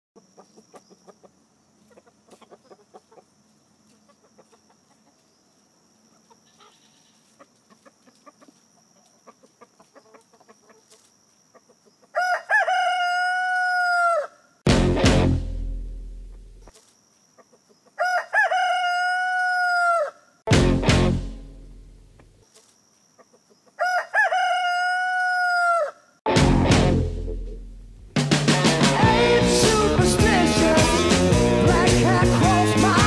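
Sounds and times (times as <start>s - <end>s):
chickens rustling in dry leaves: 0.4s - 14.4s, 16.6s - 20.3s, 22.4s - 25.9s
rooster crowing: 12.1s - 14.5s, 18.0s - 20.4s, 23.8s - 26.2s
loud music: 14.7s - 16.3s, 20.5s - 21.8s, 26.3s - 33.0s.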